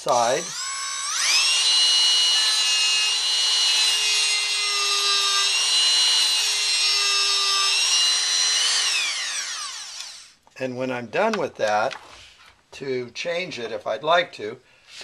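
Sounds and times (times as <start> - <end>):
rotary tool whine: 0.0 - 10.4.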